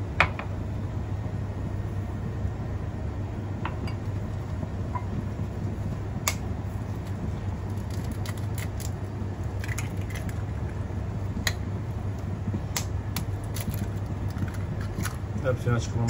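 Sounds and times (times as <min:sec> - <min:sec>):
steady low hum: 0:00.0 - 0:16.0
eggshells cracking: 0:07.0 - 0:10.8, 0:12.7 - 0:15.2.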